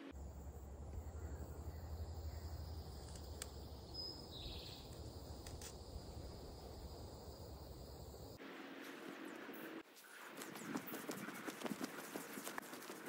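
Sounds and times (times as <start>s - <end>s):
high insect trill: 0.1s - 8.4s
low rumble: 0.1s - 8.4s.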